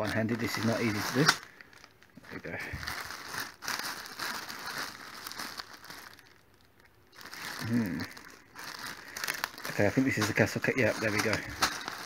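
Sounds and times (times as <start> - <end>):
plastic bag crinkling: 0.0 - 12.0
rummaging through plastic pieces: 0.0 - 12.0
person humming: 7.6 - 8.1.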